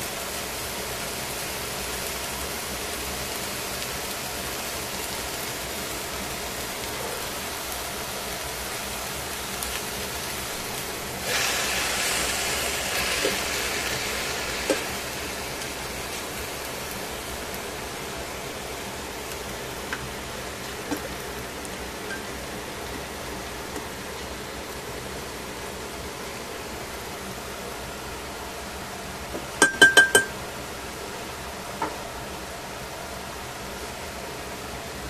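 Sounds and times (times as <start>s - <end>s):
vegetables sizzling in a pan: 0.0s - 34.0s.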